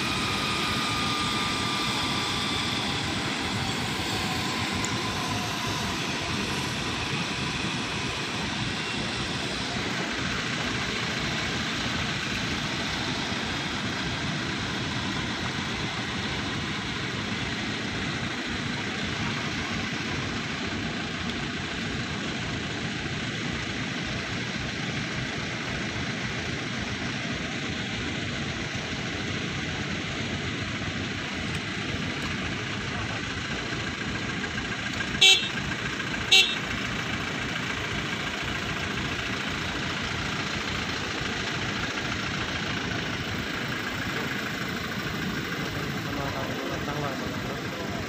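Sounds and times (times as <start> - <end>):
faint even whine: 0.0 - 48.0
rumbling outdoor noise: 0.0 - 48.0.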